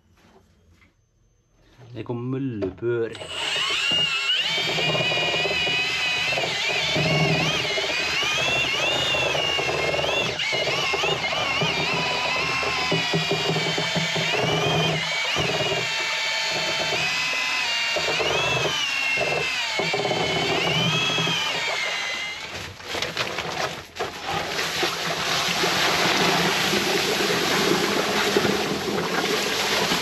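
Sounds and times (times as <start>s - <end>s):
cordless drill motor whine: 3.1s - 22.7s.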